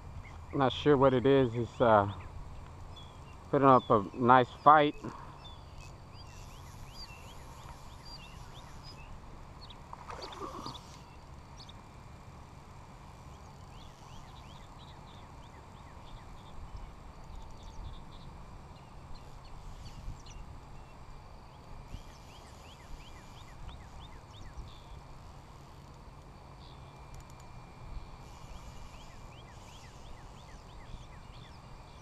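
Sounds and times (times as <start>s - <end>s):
animal rising chirps: 10.2s - 11.0s.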